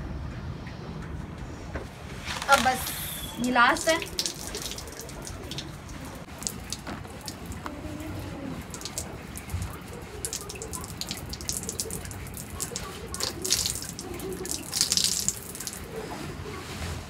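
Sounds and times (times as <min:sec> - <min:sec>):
water dripping onto floor: 0:03.4 - 0:07.8, 0:08.6 - 0:16.0.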